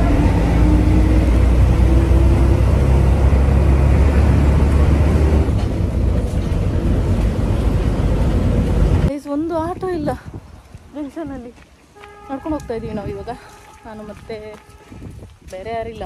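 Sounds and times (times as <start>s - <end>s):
bus engine and road rumble: 0.0s - 11.9s.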